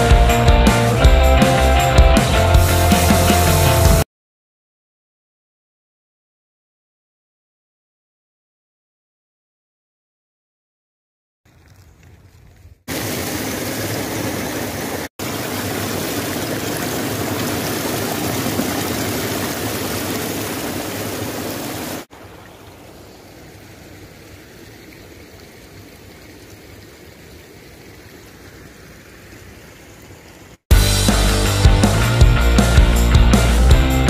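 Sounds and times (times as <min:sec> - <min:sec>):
shallow water flowing softly: 0:11.5 - 0:30.7
small waterfall splashing: 0:12.9 - 0:30.7.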